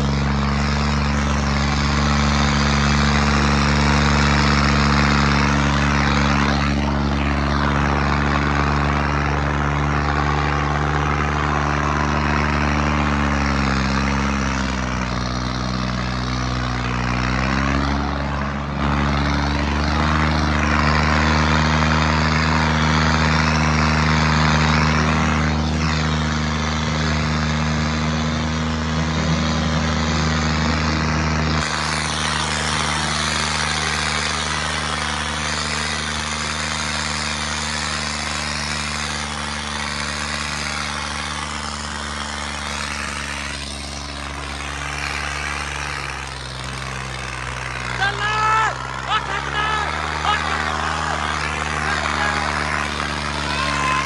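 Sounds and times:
tractor engine at high revs: 0:00.0 - 0:54.0.

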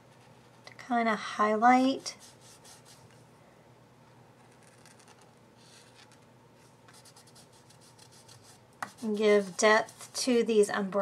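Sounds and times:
pen scratching on paper: 0:07.0 - 0:10.2.

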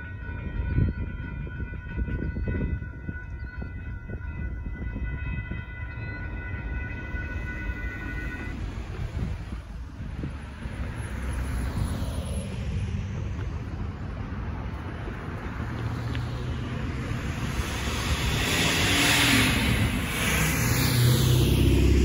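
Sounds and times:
cars and trucks driving past: 0:06.2 - 0:22.0
car passing close: 0:08.5 - 0:22.0.

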